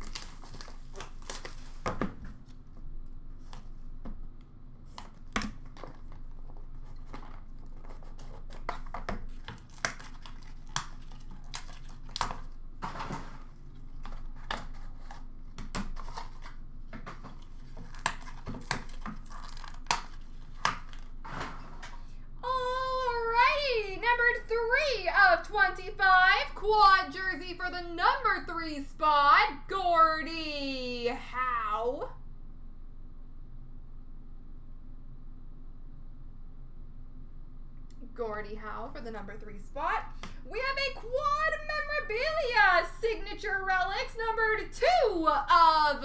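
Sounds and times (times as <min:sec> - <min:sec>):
packaging tearing and rustling: 0:00.0 - 0:02.6, 0:05.1 - 0:22.0.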